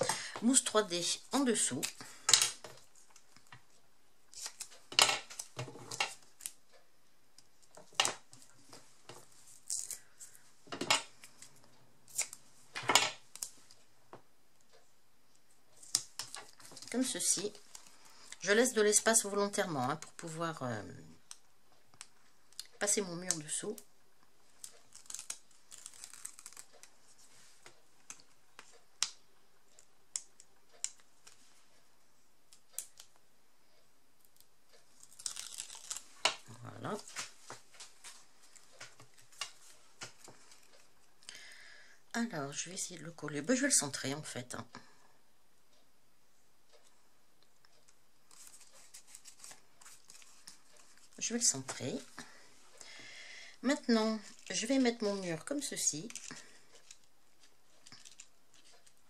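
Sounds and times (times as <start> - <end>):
paper and card clicking: 24.6 - 27.0, 55.9 - 59.0
paper rustling: 24.6 - 28.7, 48.3 - 52.2, 54.2 - 59.0.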